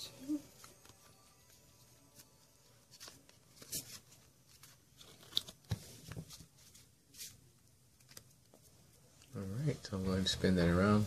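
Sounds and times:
cards rustling and clicking: 0:00.5 - 0:09.3.

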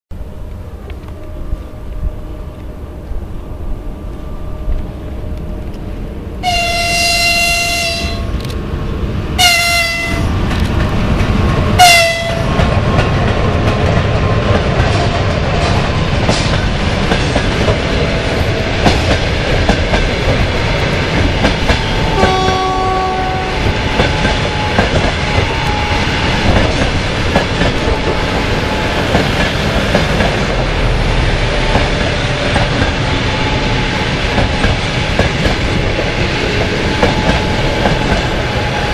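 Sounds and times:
locomotive horn blasts: 0:06.4 - 0:08.4, 0:09.4 - 0:10.3, 0:11.8 - 0:12.5, 0:22.1 - 0:23.7
train wheels clacking over rail joints: 0:10.0 - 0:22.8, 0:23.6 - 0:30.8, 0:31.6 - 0:38.9.

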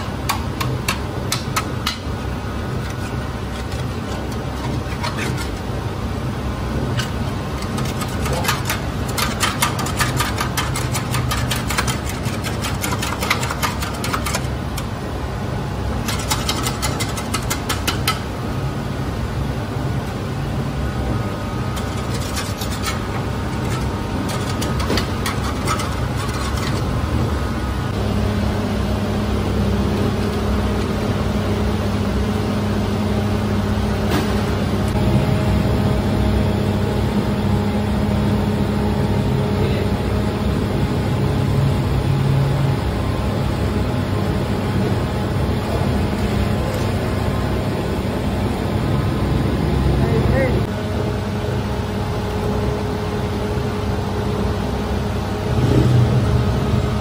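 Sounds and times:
scraper scraping metal mixer: 0:00.0 - 0:15.0, 0:15.9 - 0:18.3, 0:21.7 - 0:27.4
machine hum: 0:00.0 - 0:57.0.

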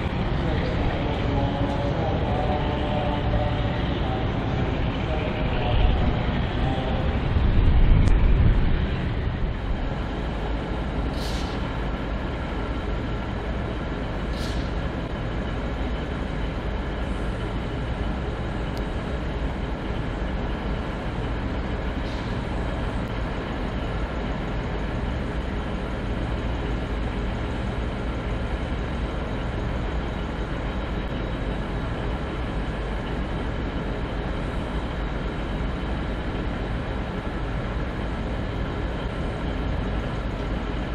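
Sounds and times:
diesel locomotive engine droning: 0:00.0 - 0:40.9
short high hisses: 0:11.1 - 0:11.6, 0:14.3 - 0:14.8.

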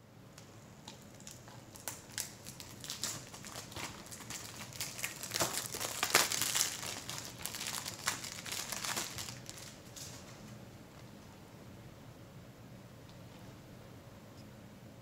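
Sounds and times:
plastic wrap crinkling: 0:00.8 - 0:10.5.

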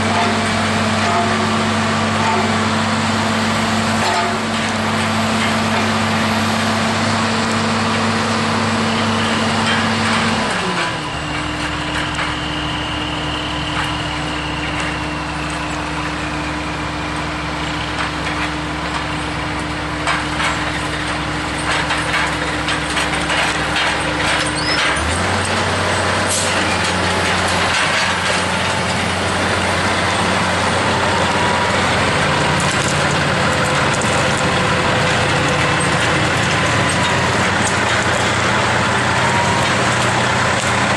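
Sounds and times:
truck diesel engine running: 0:00.0 - 0:40.9
clanks and rattles: 0:09.0 - 0:12.4, 0:17.9 - 0:40.9.

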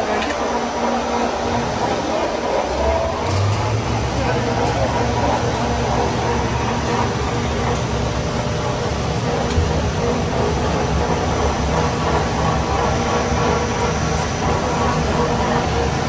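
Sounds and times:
industrial machinery drone: 0:00.0 - 0:16.0.

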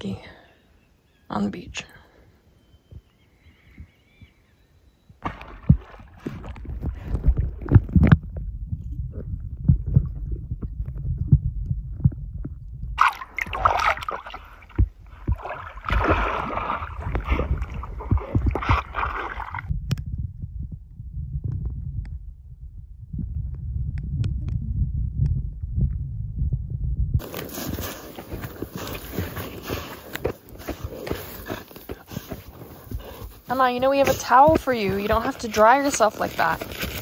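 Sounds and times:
bubbling and splashing: 0:05.2 - 0:19.7
water sloshing and gurgling: 0:05.2 - 0:19.7, 0:27.2 - 0:37.0.

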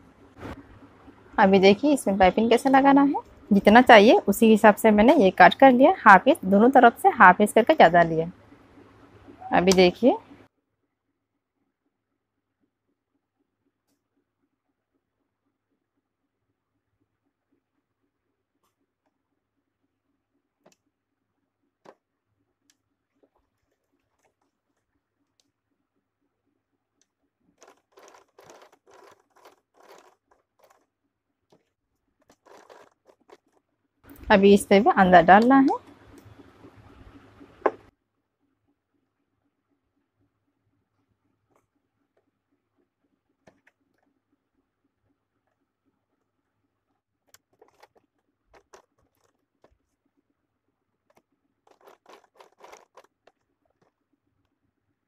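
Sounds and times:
cloth rustling and crinkling: 0:27.5 - 0:30.9, 0:31.5 - 0:33.7, 0:47.2 - 0:50.0, 0:51.1 - 0:54.0.

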